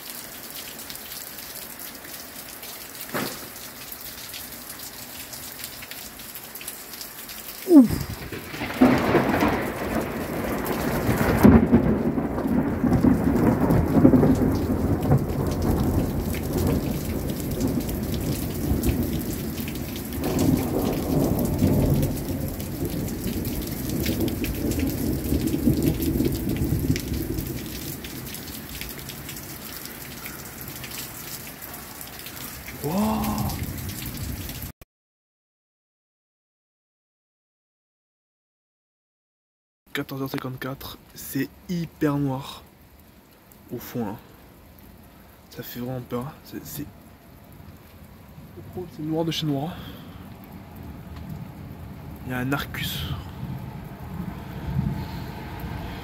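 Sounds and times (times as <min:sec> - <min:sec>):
heavy rain: 0:00.0 - 0:34.7, 0:40.0 - 0:56.0
thunder rumbling: 0:07.7 - 0:28.7, 0:50.8 - 0:56.0.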